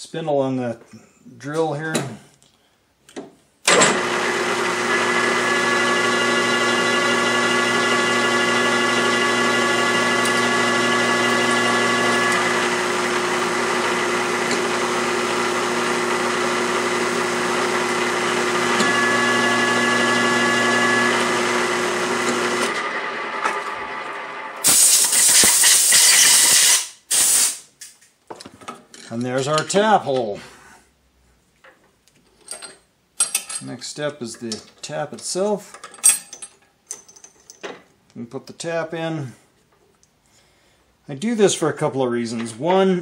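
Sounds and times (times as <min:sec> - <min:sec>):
drill press drilling metal: 0:03.7 - 0:26.8
compressed air blow gun hiss: 0:24.6 - 0:27.7.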